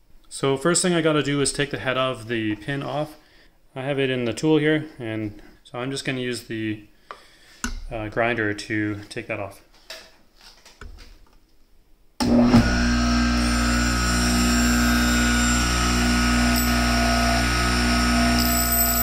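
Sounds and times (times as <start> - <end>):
bench grinder running: 12.2 - 19.0.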